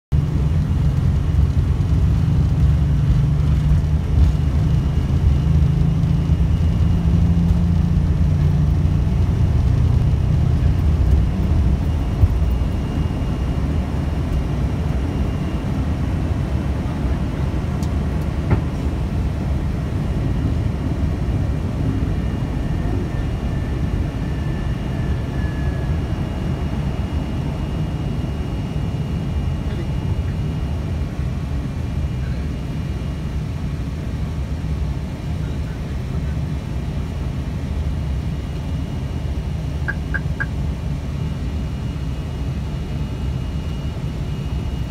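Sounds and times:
jet engines deep rumble: 0.1s - 44.9s.

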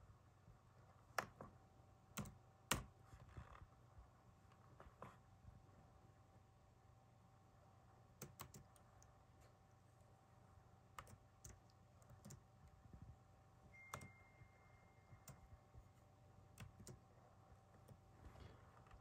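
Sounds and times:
low room hum: 0.0s - 19.0s
laptop keys clicking: 2.1s - 3.0s, 8.2s - 9.1s, 10.9s - 12.8s, 13.8s - 14.2s, 15.2s - 15.5s, 16.5s - 17.0s.

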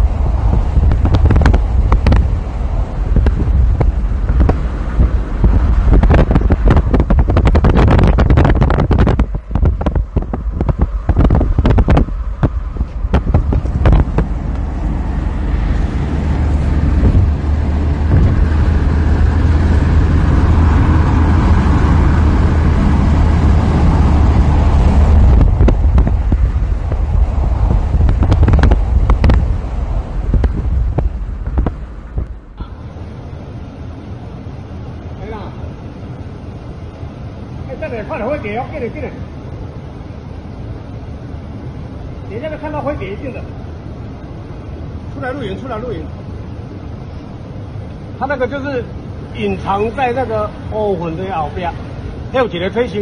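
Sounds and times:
loud low rumble: 0.0s - 36.9s
wind buffeting microphone: 0.0s - 53.0s.

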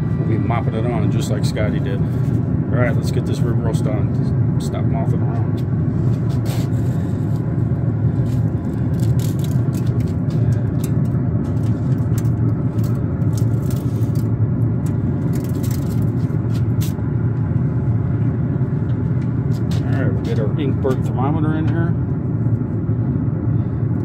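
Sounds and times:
steady low rumble: 0.0s - 24.0s.

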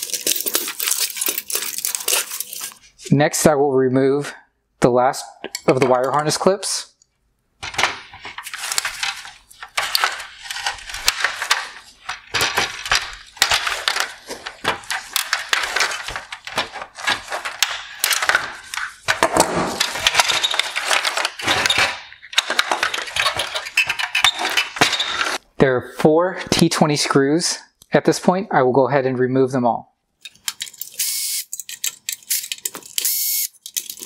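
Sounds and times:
plastic parts and wires rattling: 0.0s - 2.8s, 7.6s - 25.4s, 30.2s - 34.0s.

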